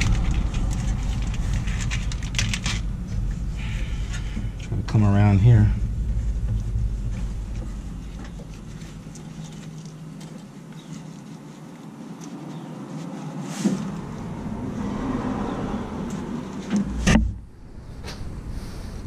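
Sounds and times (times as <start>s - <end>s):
faint rustling and clicks: 5.7s - 14.3s.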